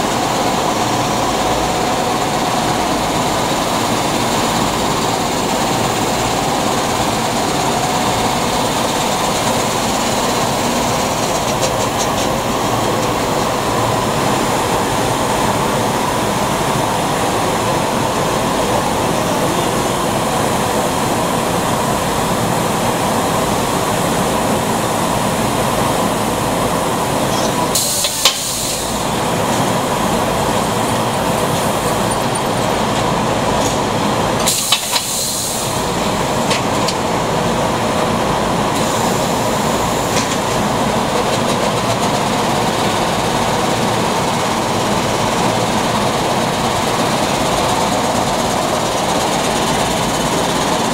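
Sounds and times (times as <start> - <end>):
machinery running: 0.0 - 50.9.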